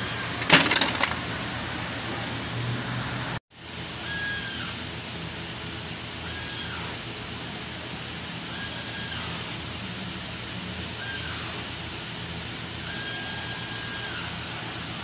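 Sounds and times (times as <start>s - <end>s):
auto shop background noise: 0.0s - 15.0s.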